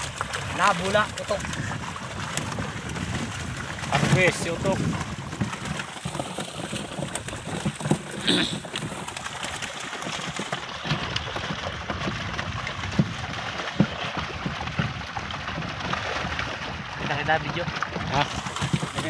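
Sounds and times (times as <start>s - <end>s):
fish splashing at surface: 0.0s - 19.0s.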